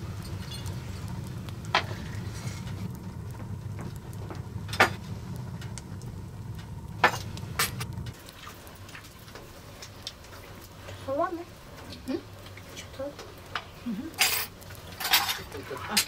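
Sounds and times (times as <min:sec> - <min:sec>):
steady low hum: 0:00.0 - 0:10.1.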